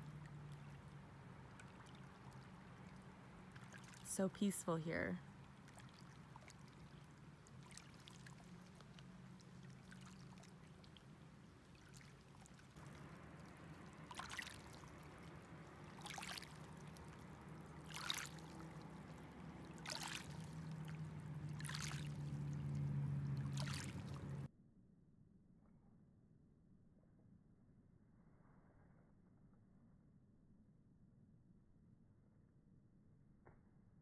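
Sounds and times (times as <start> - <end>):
small waves lapping on pebbles: 0.0 - 4.7, 5.3 - 24.5
low steady hum: 0.0 - 24.5
soft splashes: 0.0 - 24.5.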